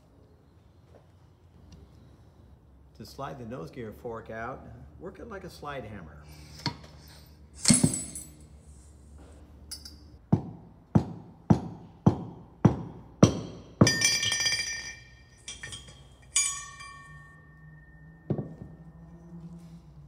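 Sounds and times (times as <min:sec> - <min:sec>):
metal-on-metal clanks: 0:13.2 - 0:19.1
metal ringing: 0:13.2 - 0:19.5.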